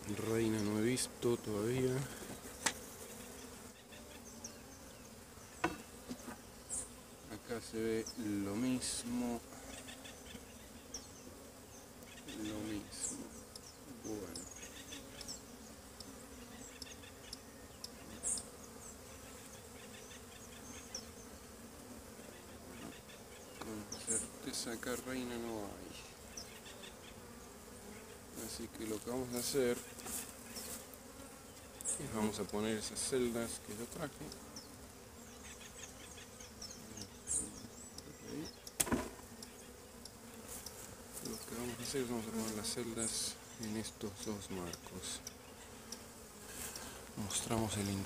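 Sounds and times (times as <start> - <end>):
honeybees buzzing: 0.0 - 48.0
wooden hive frame knock: 5.6 - 6.4, 38.6 - 39.4.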